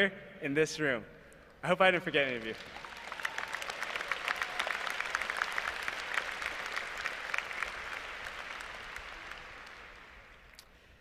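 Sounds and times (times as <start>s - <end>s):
crowd applauding: 2.1s - 10.6s.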